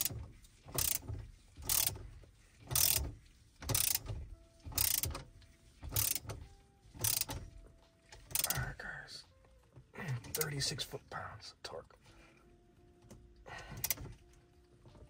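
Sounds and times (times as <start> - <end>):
ratchet wrench clicking: 0.0 - 2.0, 2.6 - 4.1, 4.7 - 5.2, 5.8 - 6.4, 7.0 - 7.4, 8.3 - 8.6, 13.8 - 14.0.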